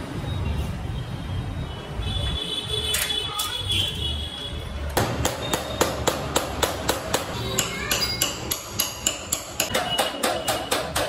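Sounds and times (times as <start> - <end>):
hammer tapping on metal: 5.0 - 11.0.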